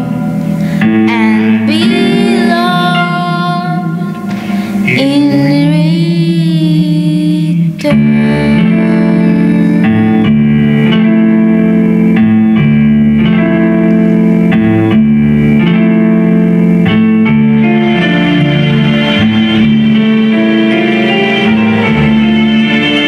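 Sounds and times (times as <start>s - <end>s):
girl singing with vibrato: 0.0s - 10.3s
grand piano chords: 0.0s - 23.0s.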